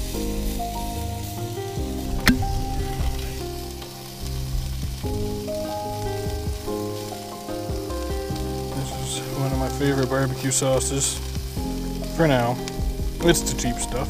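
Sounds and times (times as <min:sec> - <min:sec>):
background music with held notes: 0:00.0 - 0:14.0
sausages sizzling on barbecue: 0:00.0 - 0:14.0
sharp click: 0:02.2 - 0:02.6.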